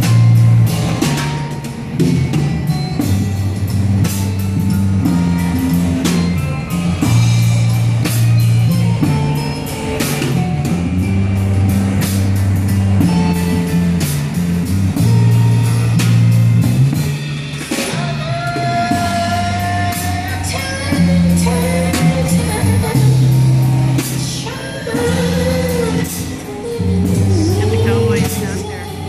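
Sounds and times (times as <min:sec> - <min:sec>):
bass line: 0:00.0 - 0:29.0
drum kit beat: 0:00.0 - 0:29.0.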